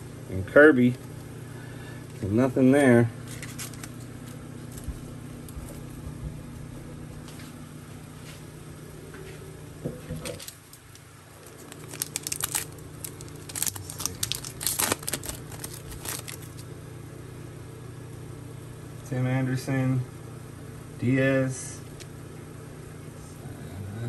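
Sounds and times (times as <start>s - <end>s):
foil wrapper crinkling and tearing: 3.3s - 4.0s, 11.4s - 16.6s.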